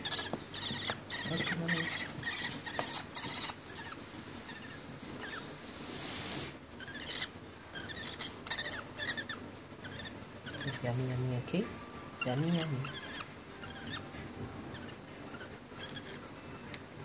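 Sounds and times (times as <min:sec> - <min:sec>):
rustling: 0:00.0 - 0:11.2.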